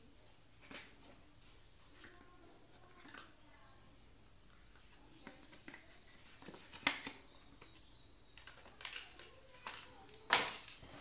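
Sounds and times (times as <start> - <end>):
plastic clicks and rustles: 4.5 - 11.0.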